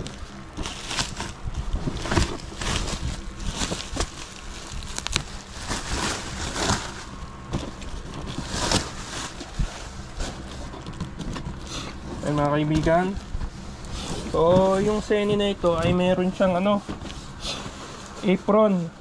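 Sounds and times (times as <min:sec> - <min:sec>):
cardboard box handling: 0:00.0 - 0:18.4
bubble wrap rustling and crinkling: 0:00.0 - 0:19.0.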